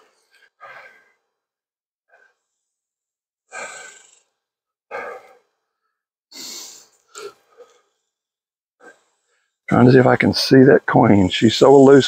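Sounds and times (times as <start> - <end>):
man breathing heavily: 0.0 - 1.5, 3.5 - 8.2.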